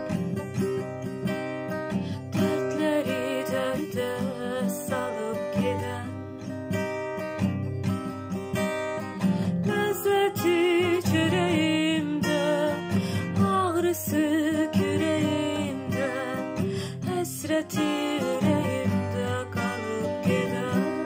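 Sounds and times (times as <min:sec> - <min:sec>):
acoustic guitar strumming: 0:00.0 - 0:21.0
woman singing: 0:02.0 - 0:06.8, 0:09.2 - 0:21.0.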